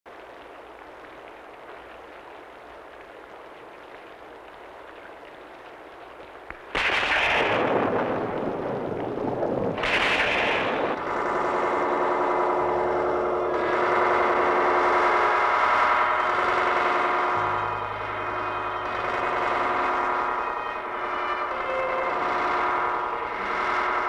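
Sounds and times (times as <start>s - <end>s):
loud crashing lightning blasts: 6.7s - 12.0s
wavering electronic drone: 10.5s - 24.0s.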